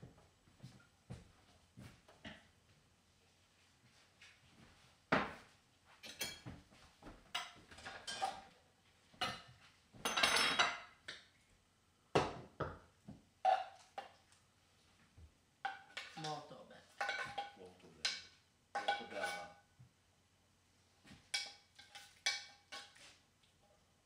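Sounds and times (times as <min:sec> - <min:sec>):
cookware clattering on counter: 0:06.0 - 0:06.6, 0:07.3 - 0:08.6, 0:09.2 - 0:11.2, 0:17.0 - 0:19.6, 0:21.3 - 0:23.0
cookware rattling: 0:10.1 - 0:11.0, 0:17.0 - 0:19.6.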